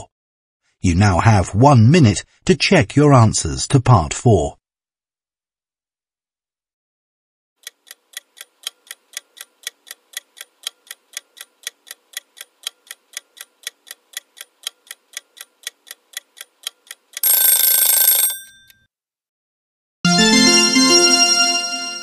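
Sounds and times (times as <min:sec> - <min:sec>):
clock ticking: 0:07.6 - 0:18.3.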